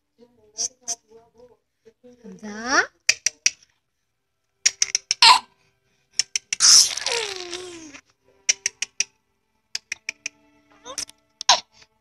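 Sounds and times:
baby laughing: 6.6s - 9.1s, 9.8s - 11.8s.

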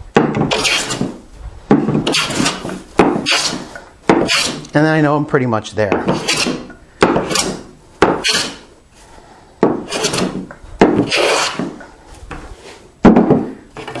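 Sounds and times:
hand plane swishing on wood: 0.4s - 1.2s, 1.9s - 4.7s, 6.0s - 7.6s, 8.2s - 8.7s, 9.8s - 12.8s.

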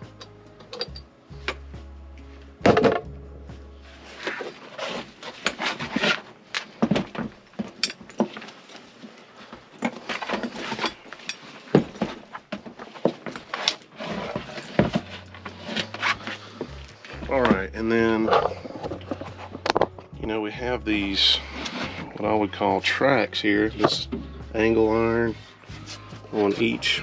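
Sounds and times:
metal housing and tools clattering: 0.0s - 1.6s, 7.6s - 8.8s, 9.8s - 12.1s, 17.2s - 20.0s.

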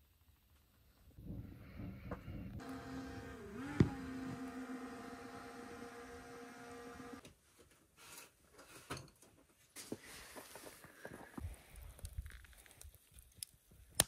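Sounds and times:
small electric motor humming: 2.6s - 7.2s.

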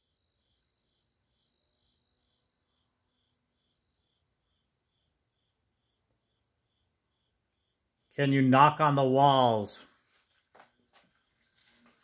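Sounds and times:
high-pitched insect trill: 0.0s - 8.0s, 10.3s - 11.7s
crickets chirping: 0.0s - 12.0s.

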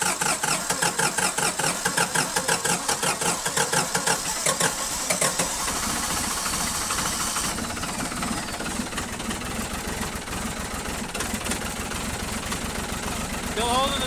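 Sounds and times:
diesel engine running: 0.0s - 14.0s
starter motor cranking: 0.0s - 14.0s.

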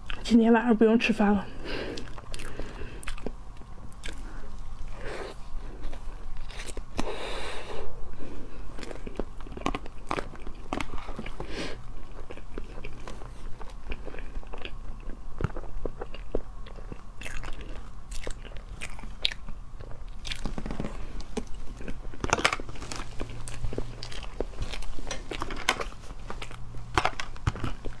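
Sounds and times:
wet chewing and biting: 1.9s - 4.9s, 5.7s - 7.1s, 8.7s - 28.0s.

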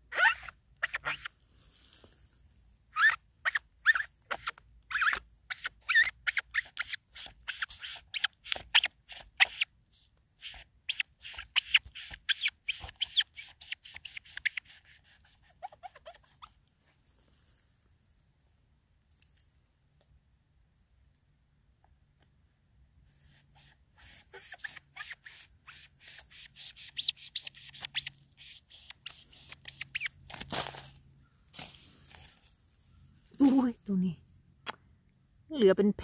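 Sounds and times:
knife sawing squeaking fungus: 0.0s - 1.4s, 2.7s - 16.6s, 23.1s - 31.0s, 33.4s - 33.7s.

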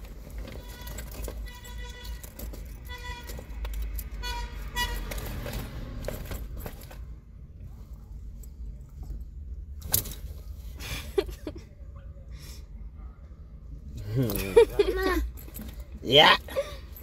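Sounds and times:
low steady rumble: 0.0s - 17.0s
keys jangling: 0.4s - 4.2s.

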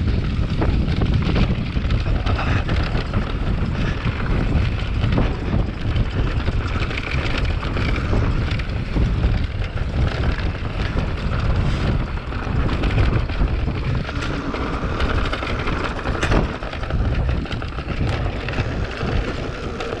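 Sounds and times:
bike rattling and knocking: 0.0s - 20.0s
bike tyres rumbling on dirt: 0.0s - 20.0s
wind buffeting microphone: 0.0s - 20.0s.

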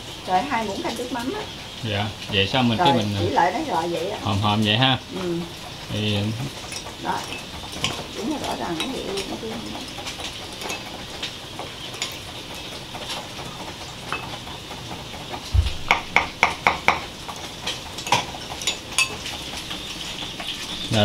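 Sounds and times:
dull thump: 15.5s - 16.3s.

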